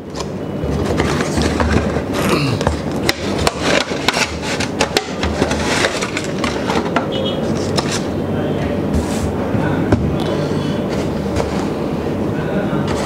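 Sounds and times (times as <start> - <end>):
plastic tray sliding and scraping: 3.5 - 7.0.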